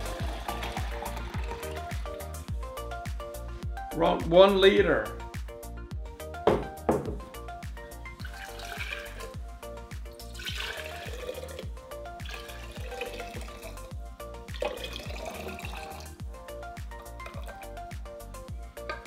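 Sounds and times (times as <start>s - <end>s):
juice pouring into glass jars: 0.0s - 2.5s, 8.1s - 9.4s, 10.2s - 18.0s
background music with beat: 0.0s - 19.0s.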